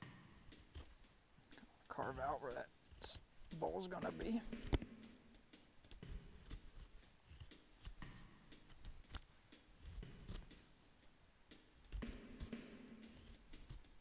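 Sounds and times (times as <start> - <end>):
knife carving wood: 0.5 - 1.6, 2.8 - 4.9, 5.8 - 10.7, 11.8 - 14.0
knife slicing and scraping: 0.6 - 1.0, 6.1 - 10.6, 11.9 - 14.0.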